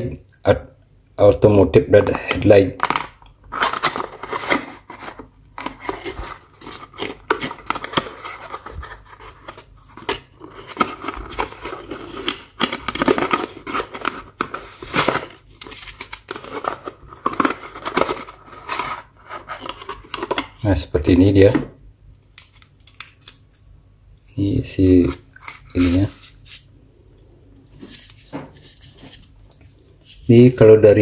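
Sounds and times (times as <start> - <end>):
plastic and cardboard crinkling: 2.8 - 20.6, 25.0 - 26.7, 27.7 - 30.3.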